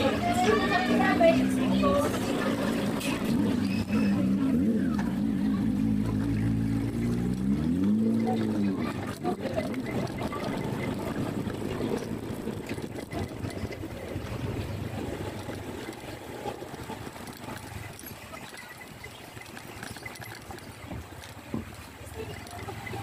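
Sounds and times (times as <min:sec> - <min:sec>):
small motorcycle engine running: 0:00.0 - 0:23.0.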